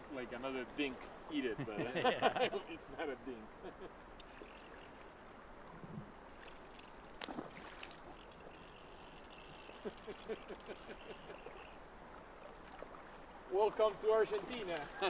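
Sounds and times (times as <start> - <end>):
river current running: 0.0 - 15.0
light ticks: 14.3 - 15.0.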